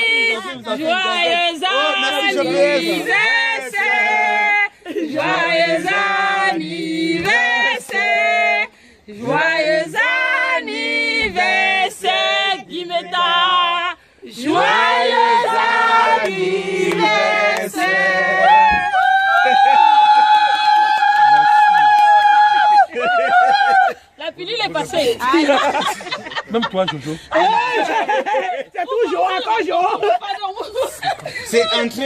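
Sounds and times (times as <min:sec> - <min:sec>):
group singing together: 0:00.0 - 0:19.3.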